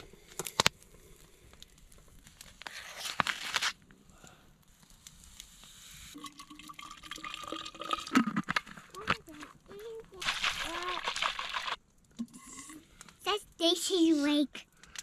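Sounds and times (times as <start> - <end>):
liquid pouring into plastic bottle: 6.2 - 8.5
packet tearing open: 10.2 - 11.8.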